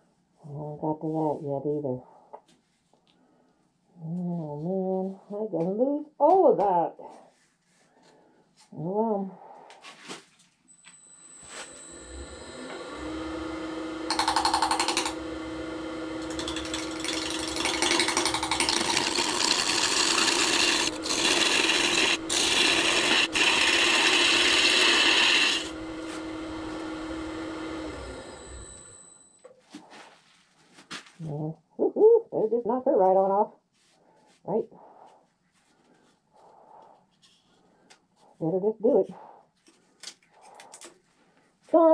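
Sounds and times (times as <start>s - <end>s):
wood lathe motor whine: 11.2s - 29.2s
turning tool scraping wood: 14.1s - 29.0s.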